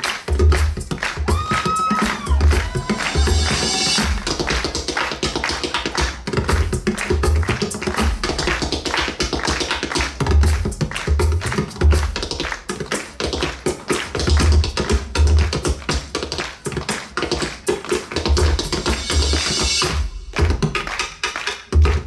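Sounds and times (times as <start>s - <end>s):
deep booming drum strokes: 2.4s - 4.6s.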